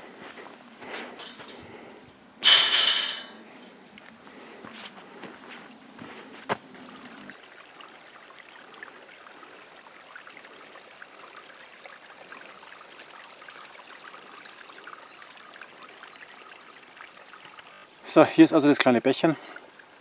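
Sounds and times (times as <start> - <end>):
brook trickling over stones: 6.4 - 20.0.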